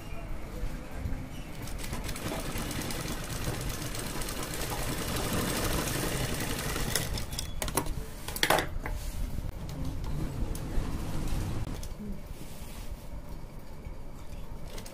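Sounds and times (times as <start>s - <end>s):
sewing machine stitching: 1.6s - 7.4s.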